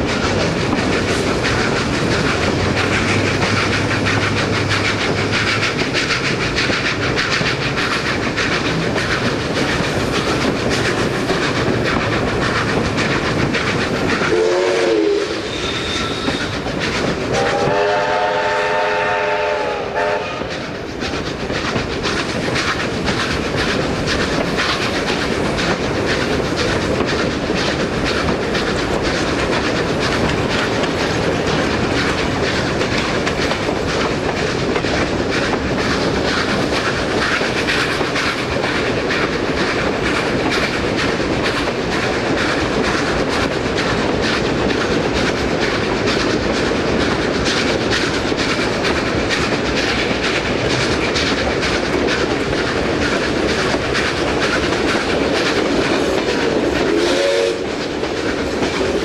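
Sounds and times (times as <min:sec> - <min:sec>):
steam train clattering on rails: 0:00.0 - 0:59.0
steam locomotive whistle: 0:14.3 - 0:16.6, 0:17.3 - 0:20.7, 0:56.8 - 0:57.8.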